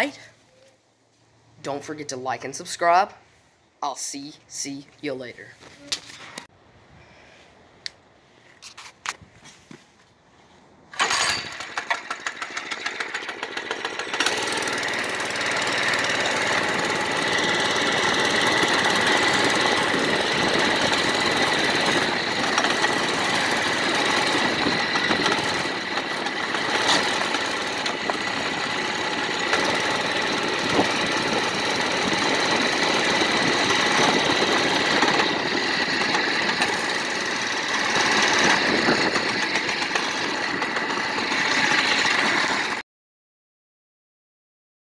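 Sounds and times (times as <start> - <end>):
mini bike engine running: 11.0 - 42.8.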